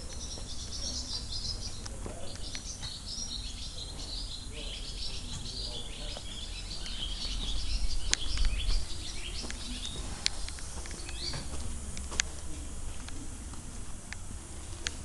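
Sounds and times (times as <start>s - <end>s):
small birds chirping: 0.0s - 15.0s
sharp clicks: 8.0s - 8.8s.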